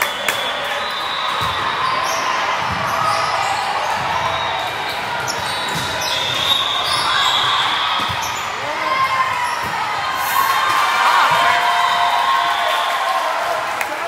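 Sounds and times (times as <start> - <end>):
sneakers squeaking: 0.0 - 10.6
balls struck and bouncing: 5.2 - 6.6, 8.0 - 8.4.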